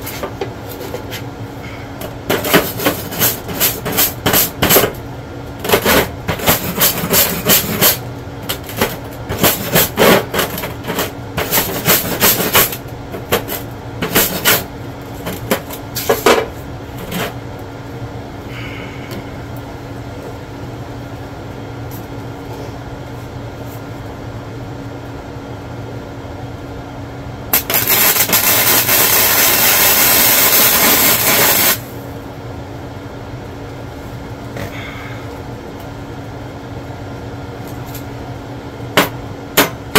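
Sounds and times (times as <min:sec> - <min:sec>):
steady hum: 0:00.0 - 0:39.9
arc welding crackling: 0:02.1 - 0:17.7, 0:27.5 - 0:32.0.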